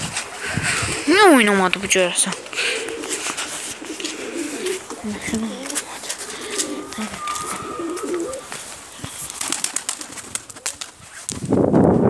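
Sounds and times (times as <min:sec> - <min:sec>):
pigeons cooing: 0:01.8 - 0:11.0.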